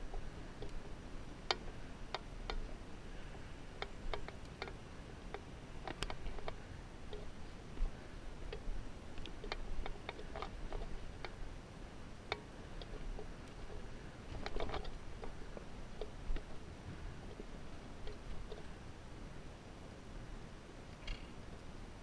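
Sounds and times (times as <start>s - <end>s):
sharp clicks and knocks: 0.0s - 2.8s, 3.8s - 11.4s, 12.2s - 16.6s.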